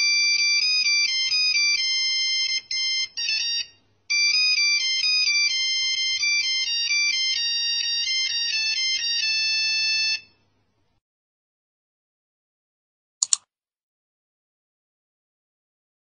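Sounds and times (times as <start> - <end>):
phone ringtone beeps: 0.0 - 10.4
quick clicks: 13.2 - 13.5.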